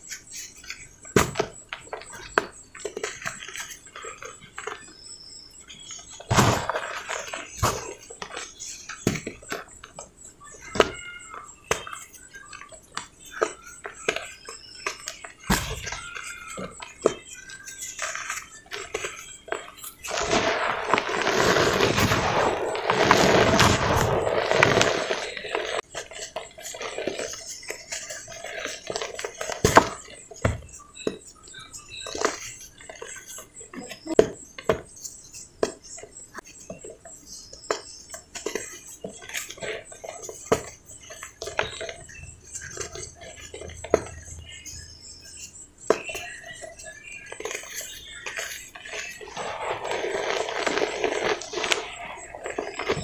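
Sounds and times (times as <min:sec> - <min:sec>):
cement lumps crunching: 0:05.8 - 0:09.7, 0:18.9 - 0:30.7, 0:47.4 - 0:53.0.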